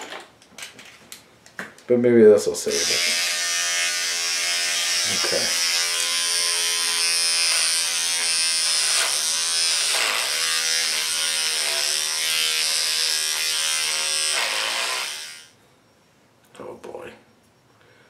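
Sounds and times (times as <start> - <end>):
electric hair clippers buzzing: 2.7 - 15.5.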